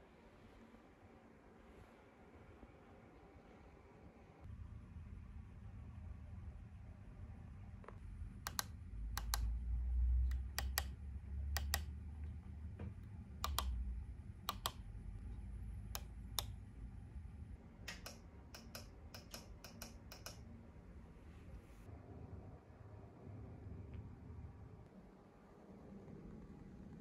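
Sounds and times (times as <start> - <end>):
push-buttons double clicking: 8.4 - 9.5, 10.3 - 11.9, 13.4 - 13.8, 14.5 - 14.8.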